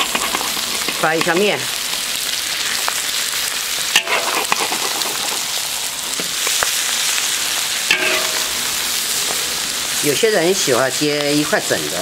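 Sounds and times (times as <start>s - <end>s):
metal spatula scraping pan: 0.0s - 1.6s, 7.9s - 8.7s
eggs sizzling in hot oil: 0.0s - 12.0s.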